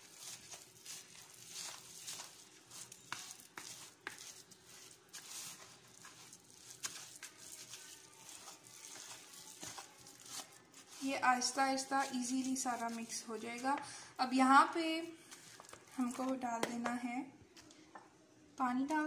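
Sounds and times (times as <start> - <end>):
whisk scraping and tapping bowl: 0.0 - 13.2.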